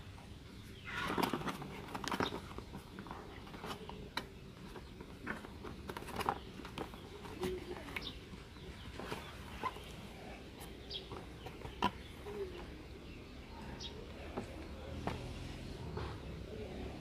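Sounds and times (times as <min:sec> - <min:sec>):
cardboard box handled and opened: 0:01.1 - 0:12.7.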